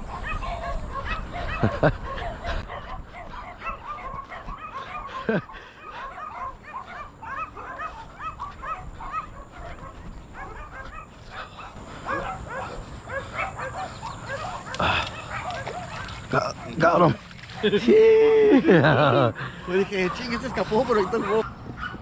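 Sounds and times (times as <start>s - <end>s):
dogs barking and yipping: 0.0s - 17.9s, 18.7s - 22.0s.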